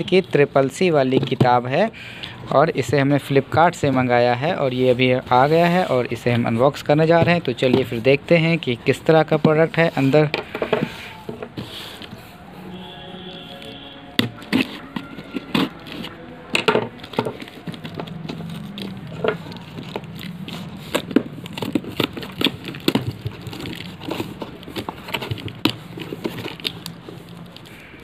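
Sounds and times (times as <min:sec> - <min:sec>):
tape and cardboard tearing: 0:13.3 - 0:27.9
knife cutting packing tape: 0:13.5 - 0:27.9.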